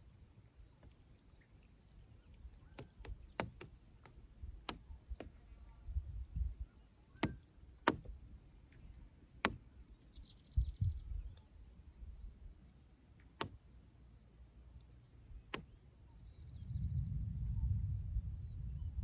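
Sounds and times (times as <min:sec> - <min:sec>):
faint low rumbling: 0:13.6 - 0:19.0.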